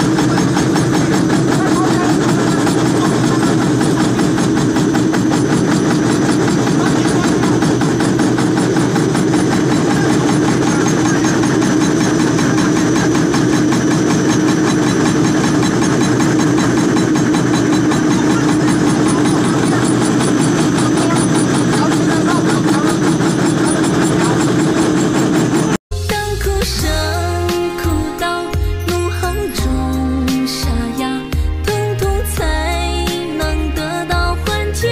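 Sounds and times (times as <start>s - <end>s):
stamping press machine drone: 0.0s - 25.8s.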